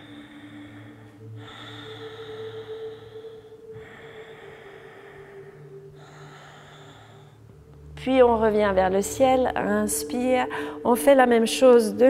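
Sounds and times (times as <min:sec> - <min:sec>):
person breathing slowly: 0:00.0 - 0:07.9.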